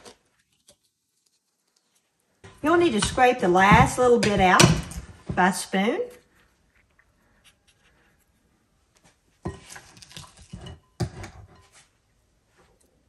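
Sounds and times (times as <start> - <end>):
spoon scraping bowl: 9.5 - 11.8.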